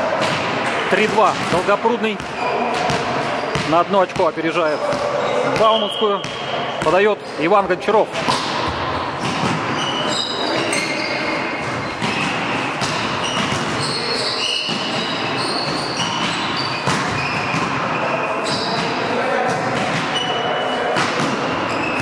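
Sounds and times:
volleyball hits: 0.0s - 7.0s, 8.1s - 22.0s
shoes squeaking on wooden floor: 9.2s - 19.0s, 21.6s - 22.0s.

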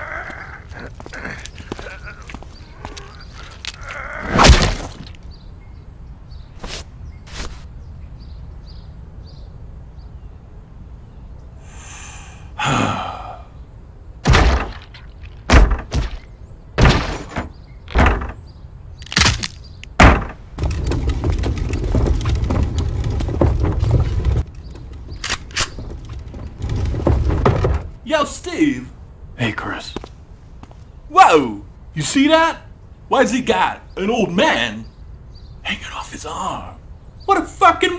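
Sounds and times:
heavy thunks: 14.2s - 28.4s
low rumbling: 20.0s - 28.1s.

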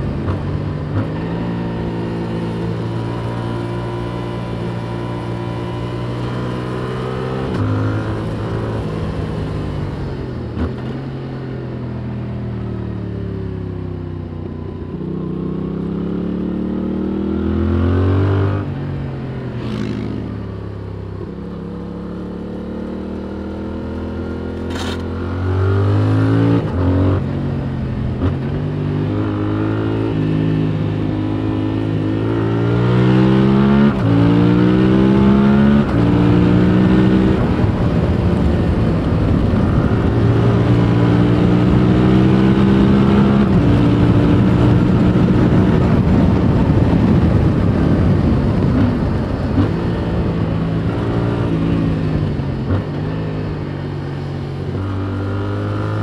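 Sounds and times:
motorcycle engine revving: 0.0s - 11.4s, 15.0s - 56.0s.

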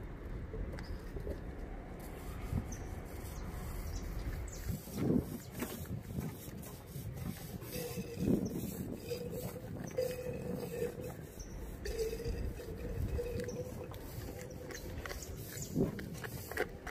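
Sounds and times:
steady low rumble: 0.0s - 16.9s
dove cooing: 7.7s - 15.9s.

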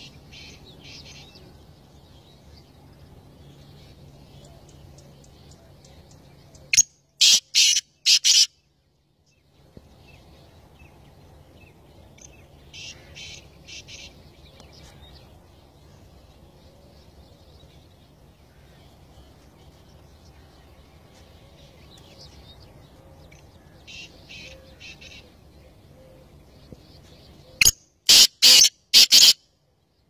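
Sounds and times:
francolin calling: 27.4s - 29.4s.

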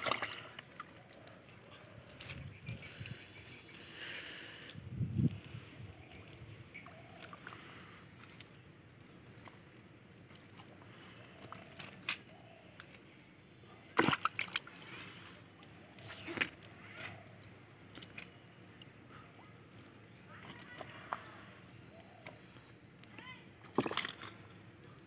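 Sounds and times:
fish splashing and flapping: 0.0s - 4.6s, 5.9s - 8.6s, 9.3s - 13.0s, 14.0s - 17.3s, 23.6s - 24.6s.

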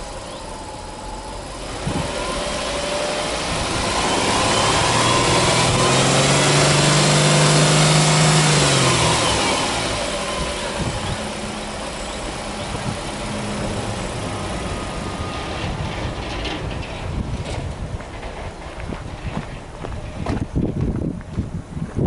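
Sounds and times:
car engine revving and idling: 0.0s - 17.1s.

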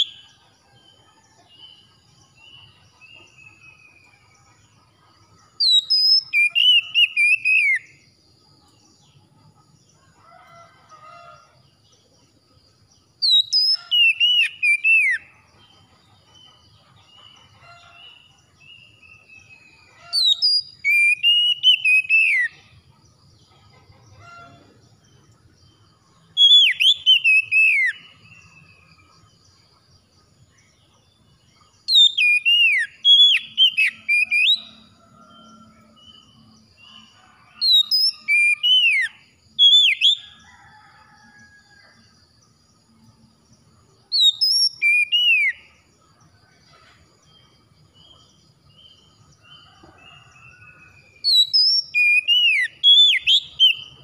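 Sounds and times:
bird singing whistled phrases: 5.7s - 7.8s, 20.2s - 22.5s, 44.2s - 45.6s, 51.3s - 53.9s.

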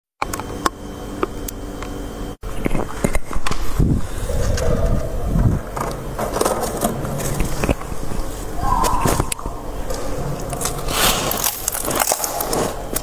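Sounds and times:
frost crunching and crackling: 5.8s - 13.0s.

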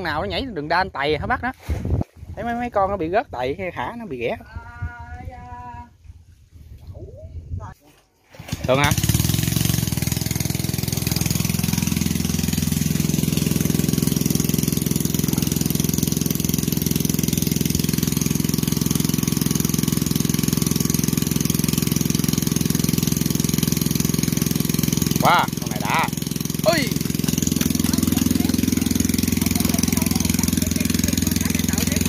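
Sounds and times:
small pump engine running: 8.3s - 32.0s.

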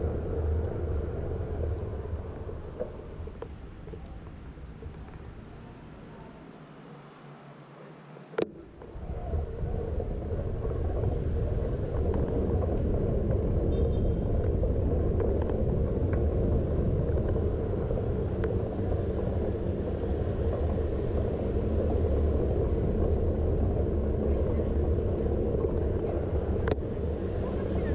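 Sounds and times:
bicycle tyres on paving stones: 0.0s - 6.9s, 8.5s - 27.9s
wind on microphone: 8.4s - 27.9s.

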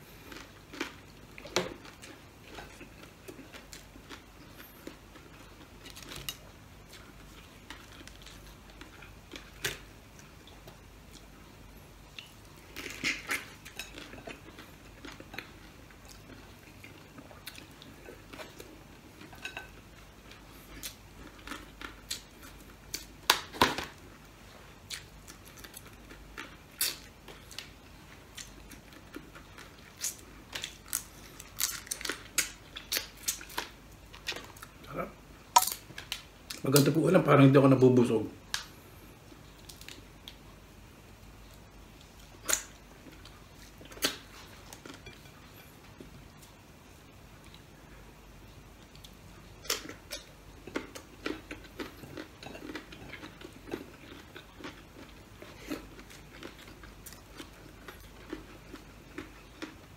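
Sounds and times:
crab shells cracking: 35.6s - 37.0s.

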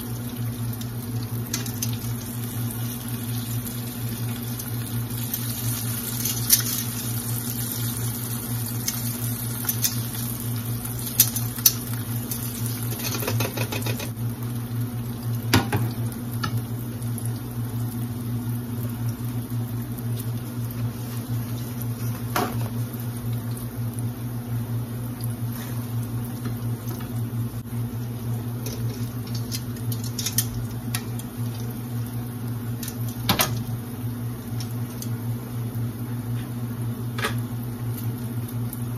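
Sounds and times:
food deep-frying in oil: 0.0s - 38.9s.

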